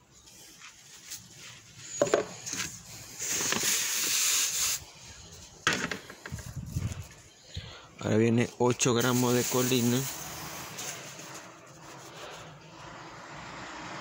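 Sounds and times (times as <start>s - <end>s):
rustling hiss: 0.3s - 7.8s.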